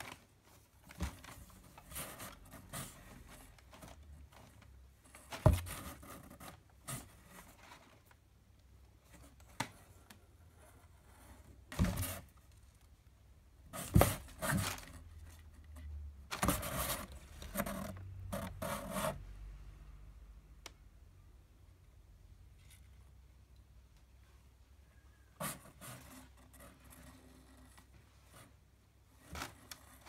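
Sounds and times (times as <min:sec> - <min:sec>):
bumps and thumps in a box: 0:05.2 - 0:07.6, 0:11.7 - 0:12.3, 0:13.7 - 0:15.0, 0:16.3 - 0:18.8
cat scratching cardboard: 0:11.0 - 0:12.4, 0:13.7 - 0:19.2.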